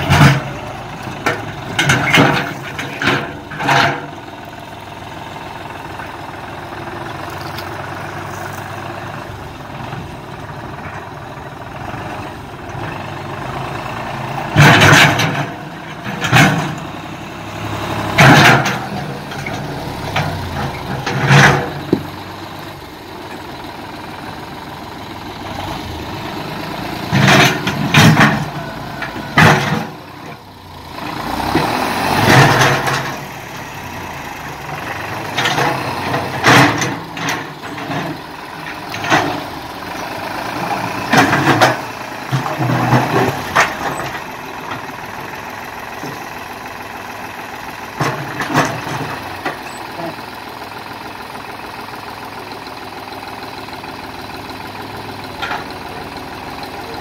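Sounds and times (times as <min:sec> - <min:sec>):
tractor diesel engine running: 0:00.0 - 0:57.0
loader bucket scraping rocks: 0:06.9 - 0:17.2, 0:17.8 - 0:24.2, 0:25.4 - 0:30.5, 0:31.1 - 0:46.5, 0:47.8 - 0:50.2.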